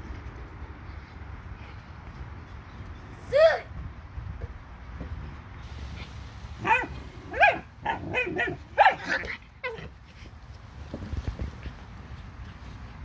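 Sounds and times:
dog barking: 6.6s - 9.2s.

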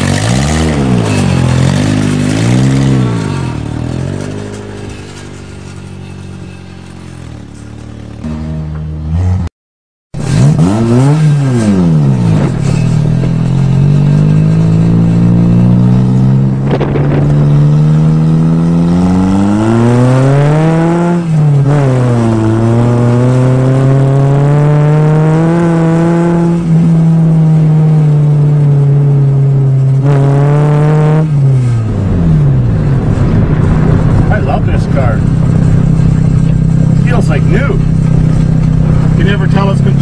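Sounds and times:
car engine revving: 0.0s - 9.5s, 10.2s - 40.0s.

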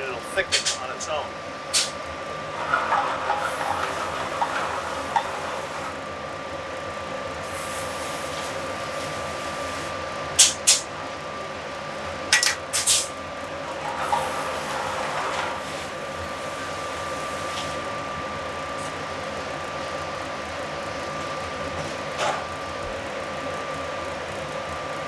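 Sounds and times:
kitchen ventilation noise: 0.0s - 17.9s.

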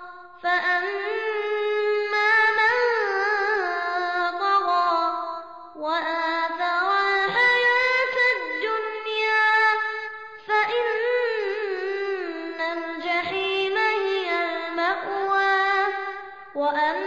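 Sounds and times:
child reciting melodically: 6.0s - 17.0s.

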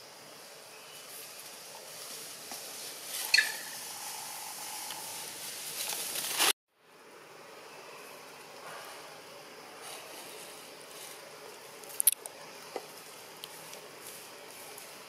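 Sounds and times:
steady outdoor hiss: 0.0s - 15.0s
high-pitched animal squeak: 3.3s - 3.8s.

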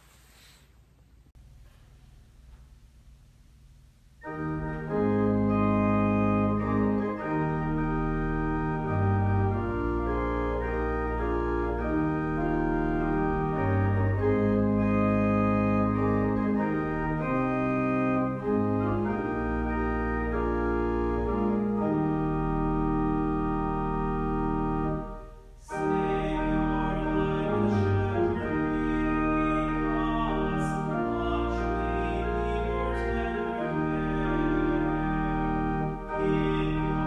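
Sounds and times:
organ playing held chords: 4.2s - 37.0s.

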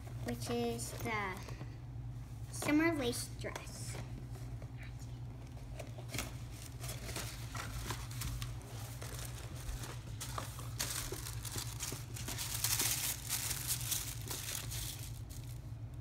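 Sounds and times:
steady low hum: 0.0s - 16.0s
packaging crinkling and tearing: 6.0s - 16.0s.

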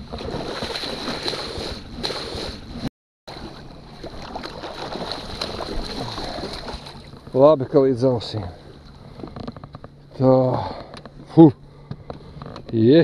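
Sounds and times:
fish thrashing and splashing water: 0.0s - 2.6s, 3.3s - 7.3s.

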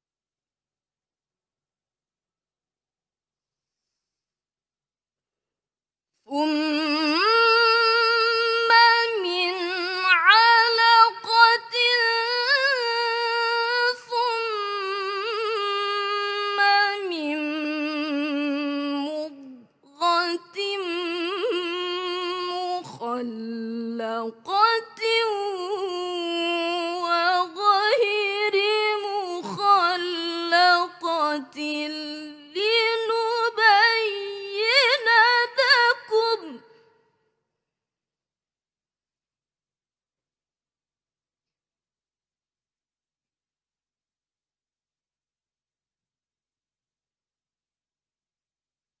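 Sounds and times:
woman reciting melodically: 6.3s - 36.7s.

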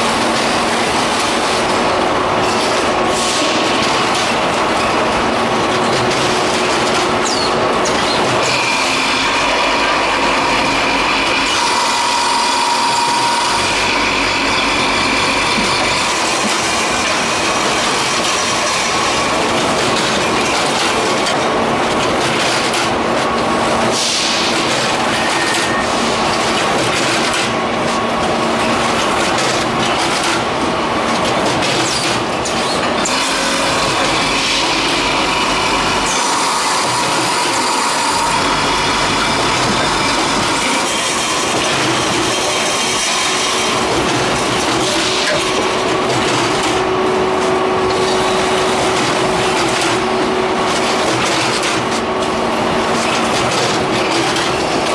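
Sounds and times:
machinery clatter: 0.0s - 54.9s.

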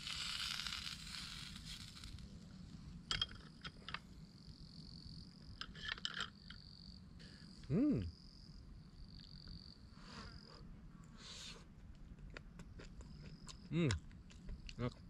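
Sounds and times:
insects trilling in grass: 0.0s - 2.4s.

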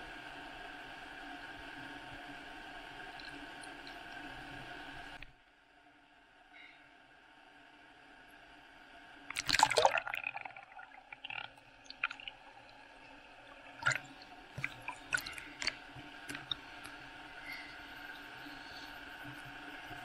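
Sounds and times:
sea water splashing: 9.3s - 18.9s.

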